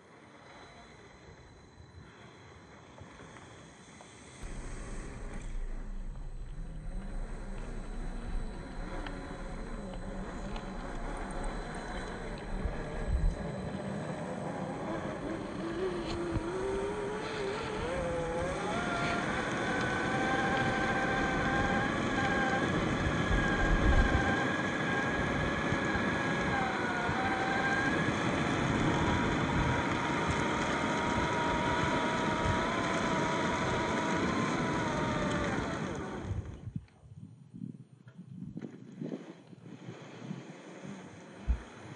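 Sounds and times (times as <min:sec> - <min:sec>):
electric motor whining: 0:04.4 - 0:36.5
rough drive noise: 0:04.4 - 0:36.5, 0:40.6 - 0:41.9.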